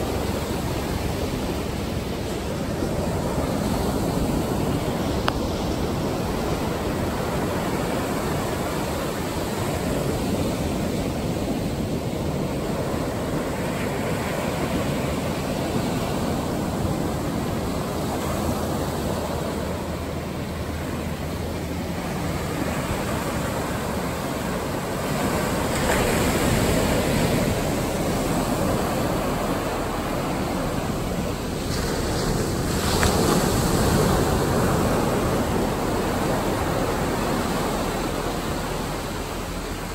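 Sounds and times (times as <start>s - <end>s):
waves breaking on shore: 0.0s - 39.9s
foam washing up sand: 21.7s - 39.9s.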